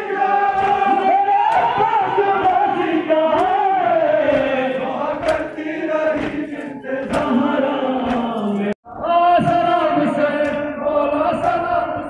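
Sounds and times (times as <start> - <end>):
crowd chanting a lament: 0.0 - 12.0
chest-beating slaps: 1.5 - 3.6, 4.3 - 8.5.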